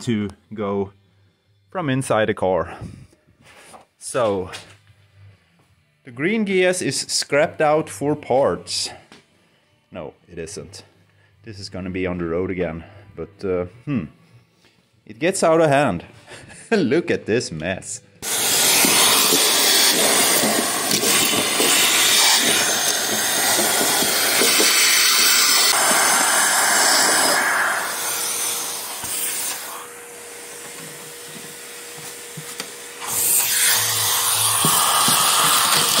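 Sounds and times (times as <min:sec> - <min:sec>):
vacuum cleaner rushing: 0:18.2 - 0:36.0.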